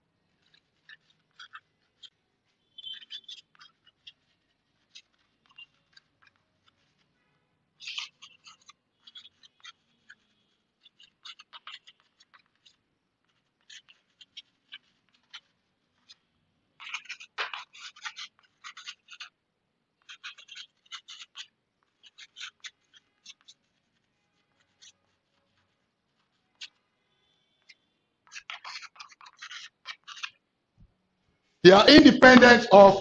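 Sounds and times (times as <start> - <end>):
chalk scratching on blackboard: 0.2 - 7.2, 7.8 - 19.4, 20.0 - 27.0, 27.6 - 30.4.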